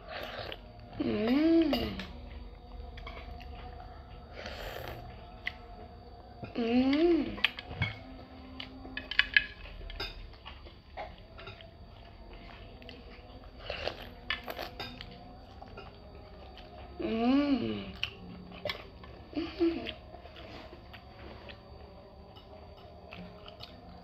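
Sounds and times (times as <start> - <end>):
person humming: 0.0 - 9.9, 12.6 - 20.8.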